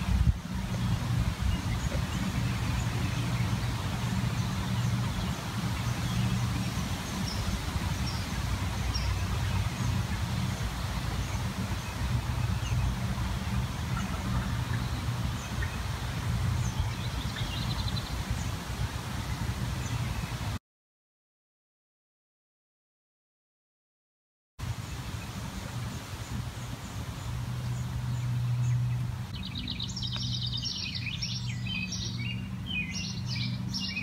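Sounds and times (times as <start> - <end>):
low mechanical hum: 0.0 - 20.6, 24.6 - 34.0.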